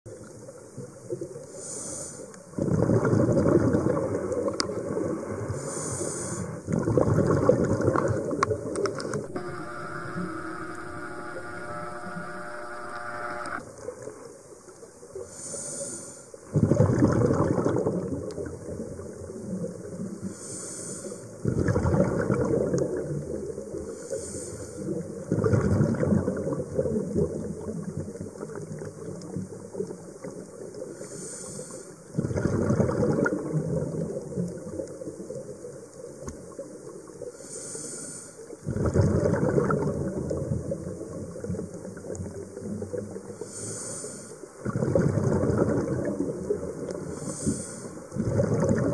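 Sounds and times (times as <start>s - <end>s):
regulator inhalation hiss: 1.6s - 2.3s, 9.3s - 13.6s, 20.3s - 21.3s, 24.0s - 24.8s, 31.0s - 32.0s, 37.4s - 38.4s, 43.4s - 44.4s, 47.0s - 48.1s
exhaust bubbles gushing: 6.7s - 8.4s, 16.5s - 19.2s, 21.4s - 23.4s, 25.2s - 28.2s, 32.2s - 34.1s, 38.7s - 41.6s, 44.6s - 46.9s, 48.2s - 48.9s.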